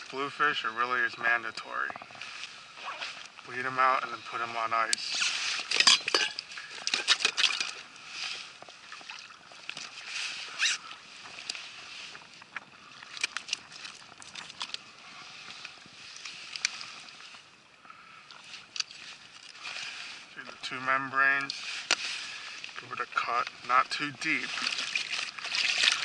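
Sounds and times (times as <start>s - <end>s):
water around a boat: 0.0s - 26.0s
metal tools clicking and clinking: 5.7s - 7.7s.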